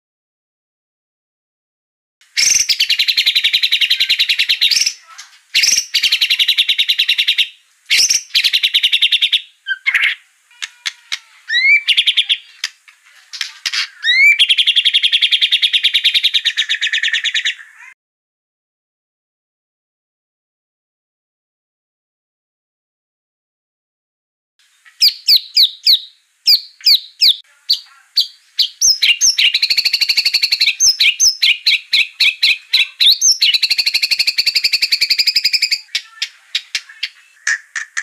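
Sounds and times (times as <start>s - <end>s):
bird singing rattling phrases: 2.4s - 17.9s, 24.8s - 38.0s.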